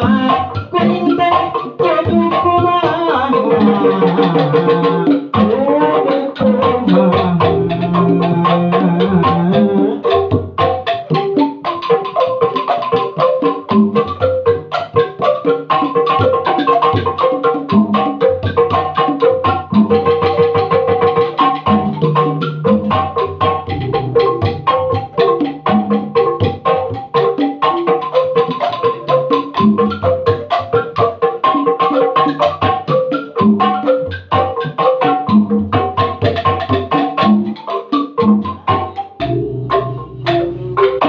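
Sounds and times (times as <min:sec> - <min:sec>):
man singing: 0:00.0 - 0:10.1
bamboo tubes struck with mallets: 0:00.0 - 0:41.0
hand drum: 0:00.0 - 0:41.0.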